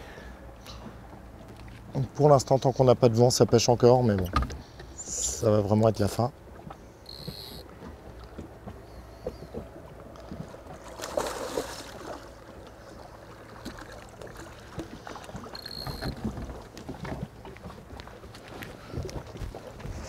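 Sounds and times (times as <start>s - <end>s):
water lapping against boat hull: 0.0s - 20.0s
small ticks: 7.1s - 7.6s
rush of water: 10.5s - 20.0s.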